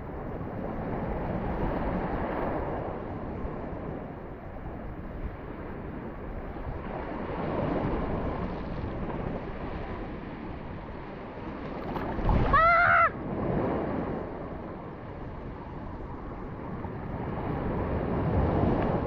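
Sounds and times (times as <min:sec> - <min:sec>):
sea surf washing: 0:00.0 - 0:19.0
wind on microphone: 0:00.0 - 0:19.0
short pitched call: 0:12.3 - 0:13.2.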